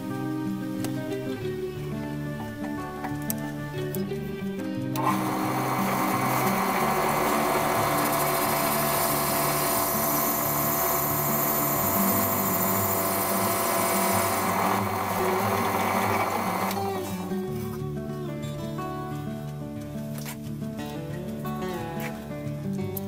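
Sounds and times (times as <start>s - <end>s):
drill press drilling plastic: 5.0s - 17.3s.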